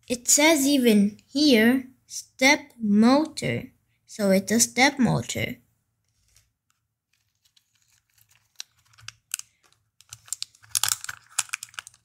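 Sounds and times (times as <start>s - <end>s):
plastic bags crinkling: 7.1s - 12.0s.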